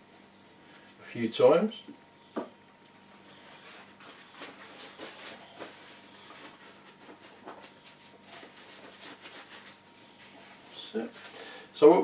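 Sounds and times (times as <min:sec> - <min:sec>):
paper tissue rustling: 0:03.2 - 0:11.8.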